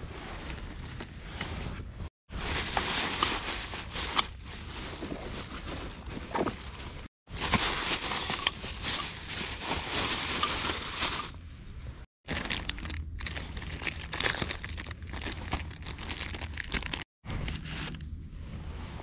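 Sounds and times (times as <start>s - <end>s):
plastic bag rustling: 2.3s - 11.4s, 12.3s - 17.1s
plastic packet crinkling: 7.6s - 11.4s, 12.3s - 17.1s.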